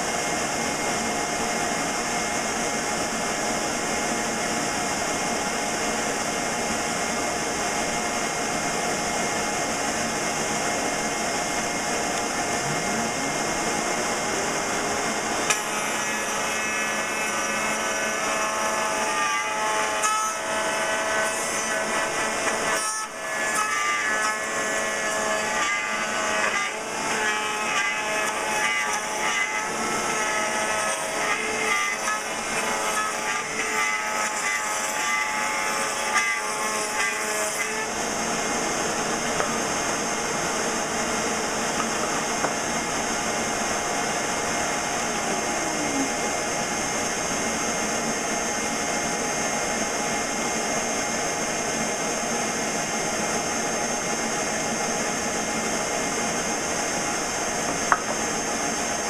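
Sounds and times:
dust vacuum running: 0.0s - 23.6s, 37.6s - 59.0s
router bit cutting wood: 0.0s - 59.0s
router whining: 0.0s - 59.0s.

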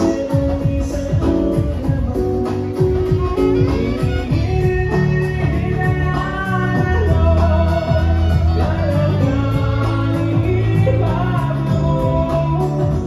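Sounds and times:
held bass notes: 0.0s - 13.0s
keyboards: 0.0s - 13.0s
man singing: 0.0s - 13.0s
saxophone: 0.0s - 13.0s.

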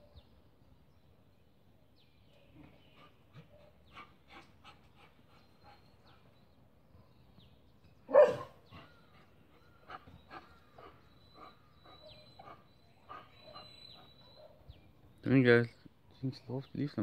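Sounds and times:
dog barking loudly: 8.1s - 8.6s.

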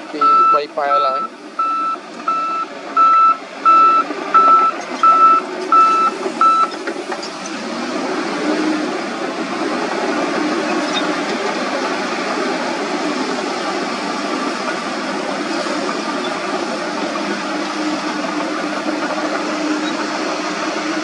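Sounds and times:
diesel engine and tracks running: 0.0s - 21.0s
reverse alarm beeping: 0.1s - 6.8s.

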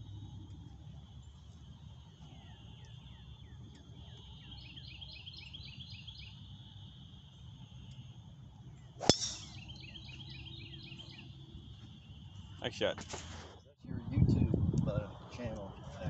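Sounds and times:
steady high buzz: 0.0s - 13.0s
bird chirping: 1.2s - 12.8s
golf club striking ball: 9.0s - 10.0s.

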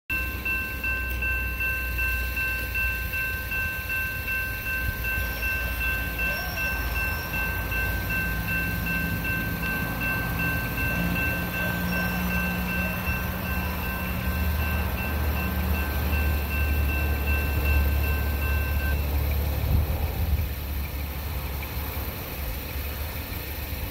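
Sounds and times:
crossing warning bell ringing: 0.1s - 23.9s
low rumble: 7.0s - 23.4s.

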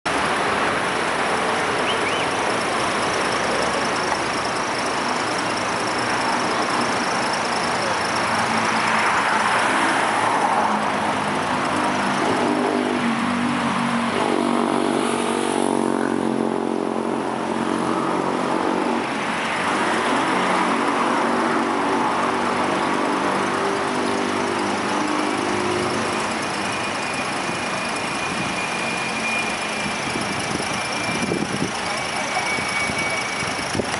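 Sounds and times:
vehicle engine running: 0.1s - 13.0s, 17.2s - 33.9s
vehicles passing: 0.1s - 33.9s.

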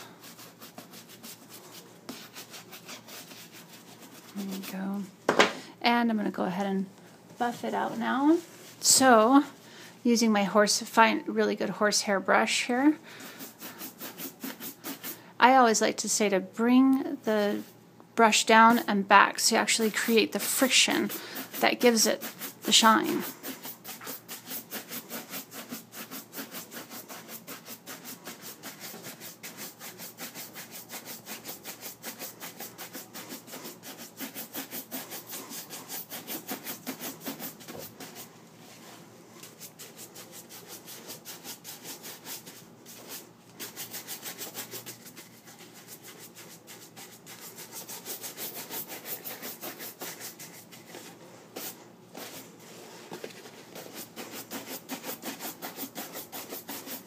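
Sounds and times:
shoe brush buffing leather: 0.0s - 4.7s, 21.0s - 38.3s, 39.5s - 50.7s, 53.7s - 57.0s.

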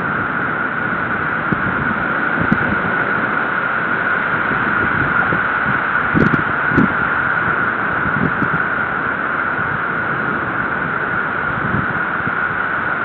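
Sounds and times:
rain and wind hiss: 0.0s - 13.0s.

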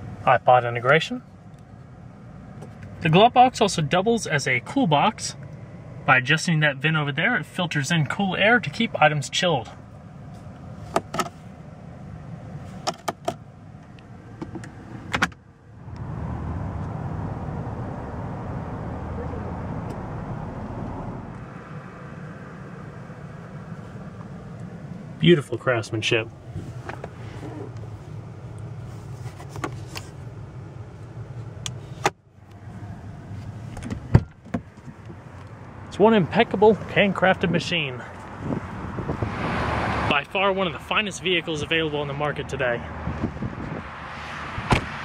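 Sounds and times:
low hum inside car cabin: 0.0s - 39.4s, 40.0s - 43.9s
glove box latch clicking: 10.9s - 11.4s, 12.8s - 15.4s
low rushing noise: 15.7s - 27.4s.

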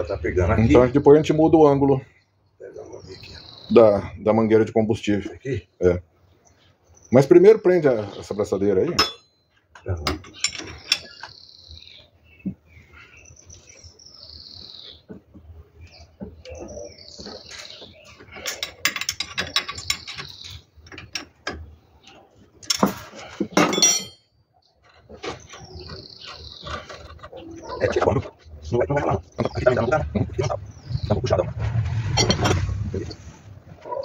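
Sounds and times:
metallic tool clinks: 23.7s - 24.2s.

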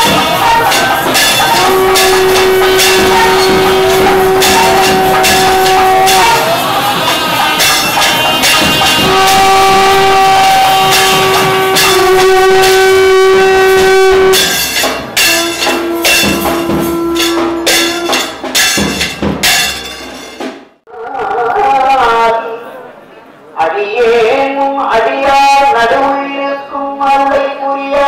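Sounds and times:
reed horn long notes: 0.0s - 18.5s
rapid percussion strikes: 0.0s - 20.8s.

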